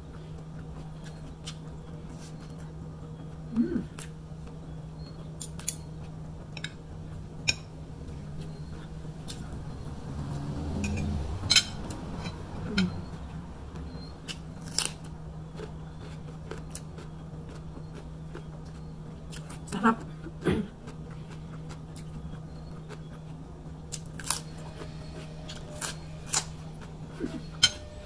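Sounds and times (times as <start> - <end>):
faint low hum: 0.0 - 28.0
chewing: 12.8 - 19.6.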